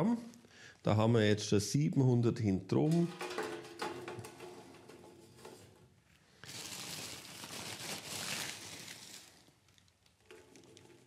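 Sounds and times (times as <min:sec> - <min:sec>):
scoop scraping metal pan: 0:02.8 - 0:06.0
plastic sack rustling: 0:03.0 - 0:11.0.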